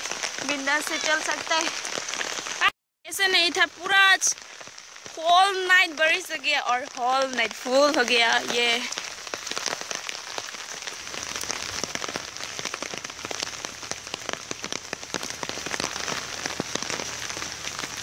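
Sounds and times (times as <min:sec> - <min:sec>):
heavy rain falling: 0:00.0 - 0:18.0.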